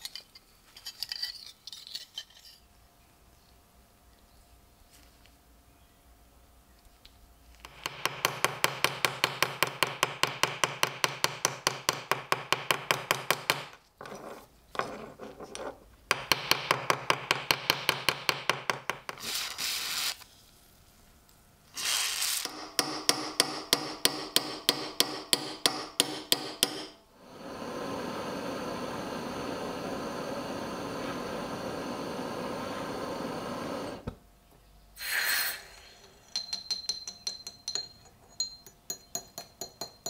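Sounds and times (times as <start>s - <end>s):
gas torch hissing: 19.2s - 20.2s, 21.7s - 22.7s, 27.1s - 34.2s, 35.0s - 36.1s
small hammer tapping on steel: 22.5s - 27.0s, 36.0s - 40.0s.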